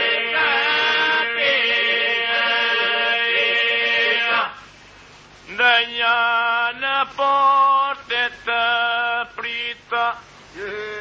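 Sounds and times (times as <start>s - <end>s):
men singing folk song: 0.0s - 4.6s
record hiss: 0.0s - 11.0s.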